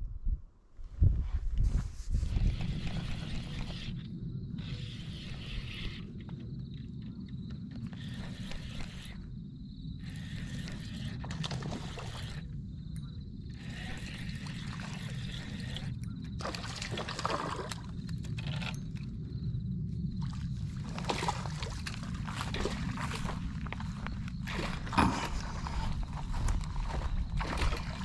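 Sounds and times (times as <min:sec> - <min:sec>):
spinning reel clicking: 0:04.6 - 0:06.1
steady low rumble: 0:18.8 - 0:28.0.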